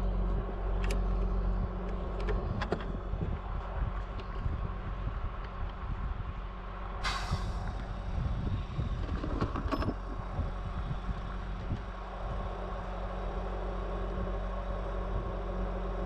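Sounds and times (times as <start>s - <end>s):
truck engine droning: 0.0s - 16.0s
sharp hiss: 7.0s - 7.9s.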